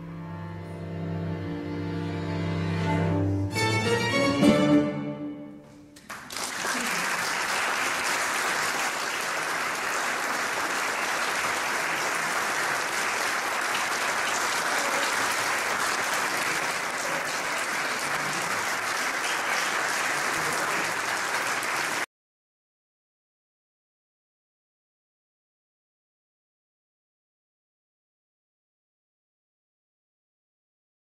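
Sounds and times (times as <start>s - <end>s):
audience applauding: 6.0s - 22.1s.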